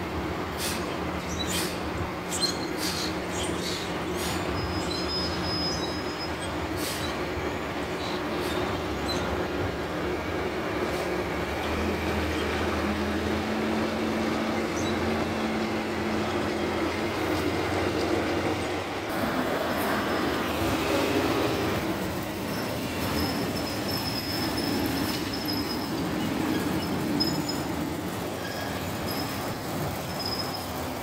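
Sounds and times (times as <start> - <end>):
diesel engine hum: 0.0 - 31.0
thin high squeal: 2.4 - 7.2, 22.4 - 30.8.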